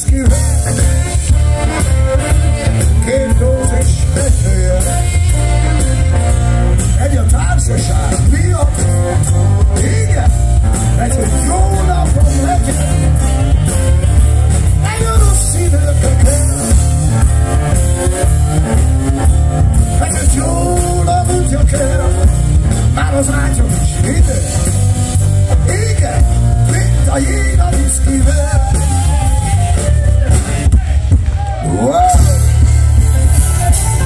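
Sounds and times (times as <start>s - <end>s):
person singing: 0.0s - 13.3s
saxophone: 0.0s - 14.7s
live rock blues band: 0.0s - 34.0s.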